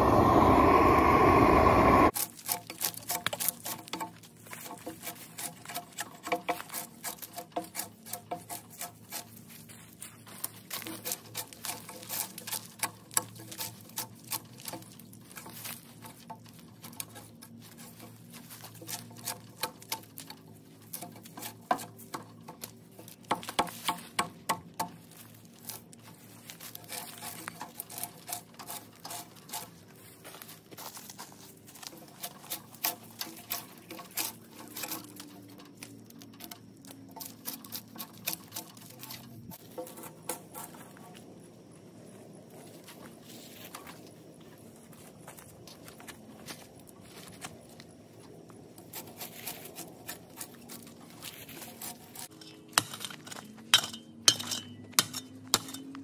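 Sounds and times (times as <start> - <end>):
propane torch rushing: 0.0 - 2.2
drawknife scraping bark: 2.2 - 9.4, 10.7 - 15.5, 18.6 - 20.3, 20.9 - 22.2, 26.6 - 29.8, 30.9 - 35.8, 37.1 - 41.0, 48.8 - 53.5.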